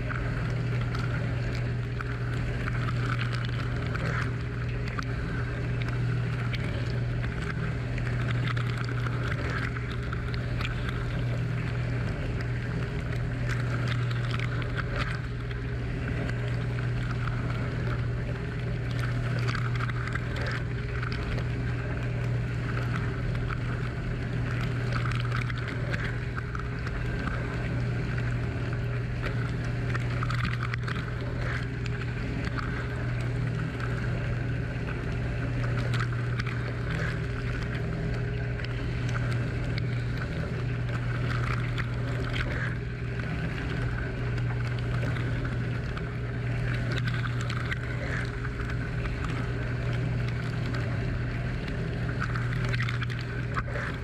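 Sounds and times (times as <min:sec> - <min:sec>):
dishwasher pump humming: 0:00.0 - 0:54.0.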